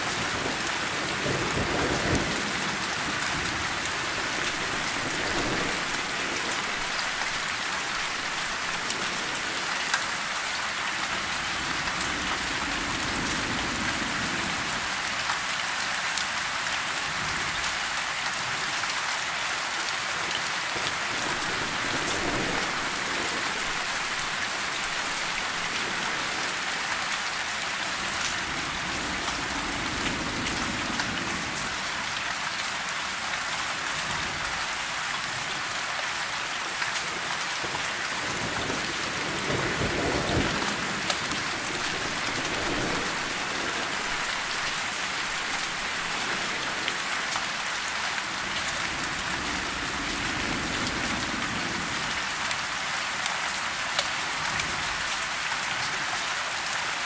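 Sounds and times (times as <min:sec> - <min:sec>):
rain falling: 0:00.0 - 0:57.0
distant thunder rumbling: 0:00.1 - 0:09.7, 0:21.1 - 0:26.7, 0:38.3 - 0:47.1.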